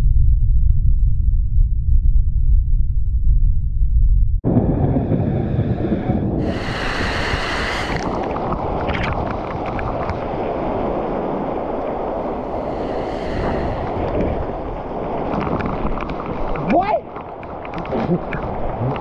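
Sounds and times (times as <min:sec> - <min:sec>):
wind: 0:04.4 - 0:19.0
rushing water: 0:06.4 - 0:19.0.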